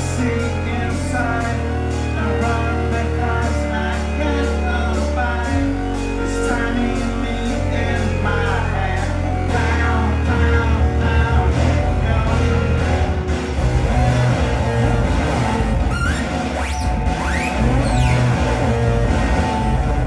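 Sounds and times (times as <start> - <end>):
bass line: 0.0 - 20.0
guitar: 0.0 - 20.0
ticking beat: 6.4 - 20.0.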